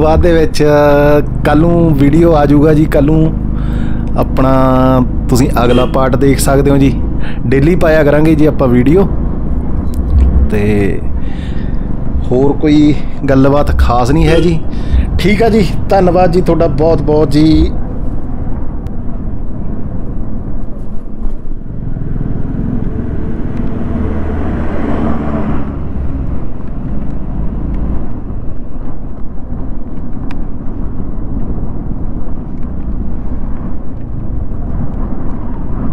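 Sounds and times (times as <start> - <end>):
motorcycle engine and road rumble: 0.0 - 35.9
wind on microphone: 9.7 - 12.6, 13.7 - 15.9.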